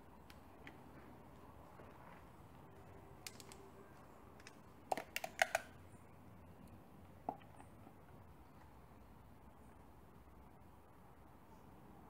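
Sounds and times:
sharp plastic clicks and taps: 4.4s - 5.8s.

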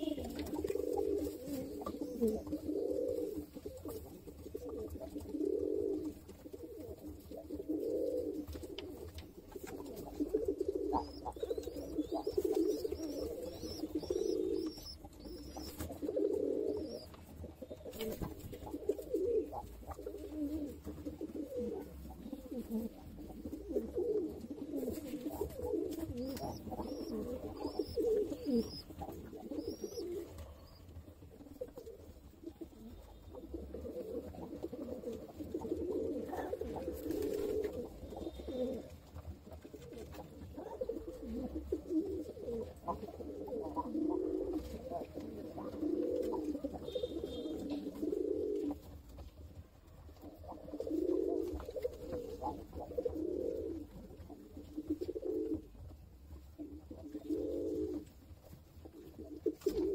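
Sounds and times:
pigeons cooing: 0.0s - 59.9s
faint high-pitched peeps: 10.8s - 15.9s.

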